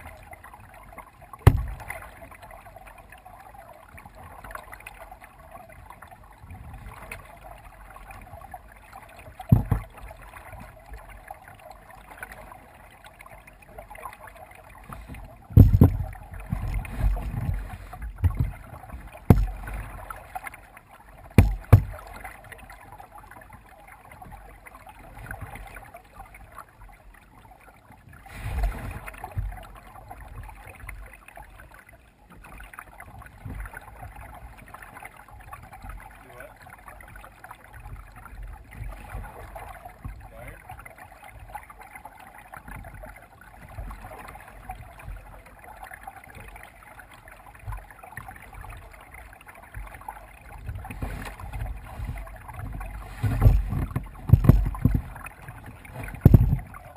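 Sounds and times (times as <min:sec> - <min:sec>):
paddle wash of water: 0:00.0 - 0:56.9
dull low thumps: 0:01.4 - 0:01.9, 0:15.2 - 0:20.0, 0:21.4 - 0:22.1, 0:50.7 - 0:56.8.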